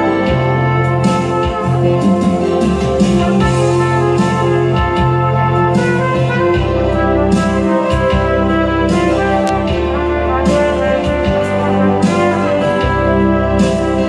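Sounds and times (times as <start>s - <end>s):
sustained bass line: 0.0s - 14.0s
trumpet melody: 0.0s - 14.0s
percussion hits: 7.3s - 12.4s.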